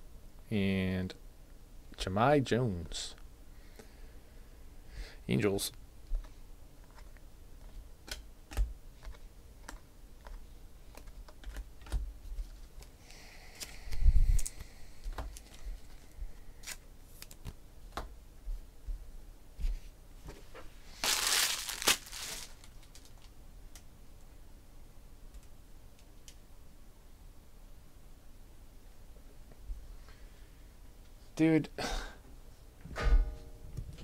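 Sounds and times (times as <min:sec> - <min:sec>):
crinkling rustle: 0:20.9 - 0:23.4.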